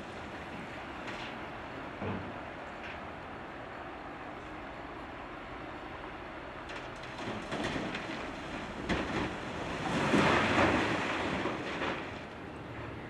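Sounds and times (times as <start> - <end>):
rumbling pour of rock: 7.1 - 12.4.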